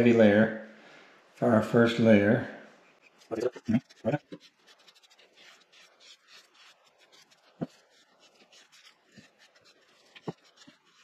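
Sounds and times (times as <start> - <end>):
foam brush rubbing strokes: 2.8 - 11.0.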